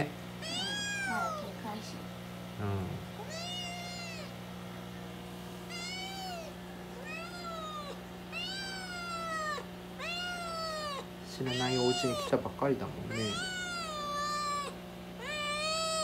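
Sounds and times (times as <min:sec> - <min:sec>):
kitten meowing: 0:00.4 - 0:01.6, 0:03.2 - 0:04.4, 0:05.7 - 0:12.4, 0:13.0 - 0:16.0.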